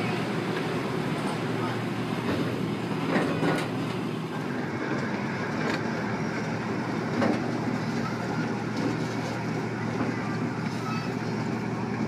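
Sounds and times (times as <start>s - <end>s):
train rumbling on track: 0.0s - 12.0s.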